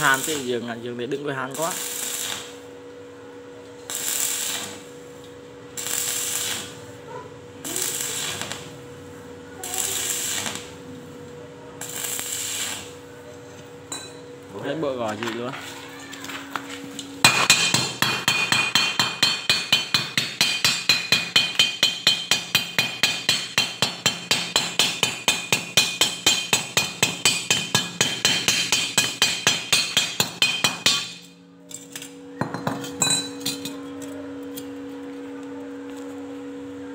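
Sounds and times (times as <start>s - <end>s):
steady low hum: 0.0s - 36.9s
hammer chipping metal: 17.2s - 31.3s.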